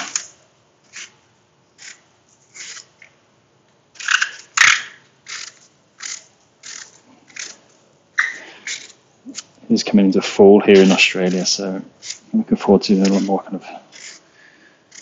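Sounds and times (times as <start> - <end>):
peeler shaving apple skin: 5.3 - 7.6, 8.2 - 9.5, 10.7 - 14.3.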